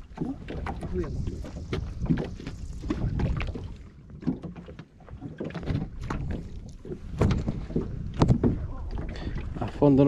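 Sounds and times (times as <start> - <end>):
water slapping against hull: 0.0 - 10.0
gear knocking in boat: 4.2 - 9.1.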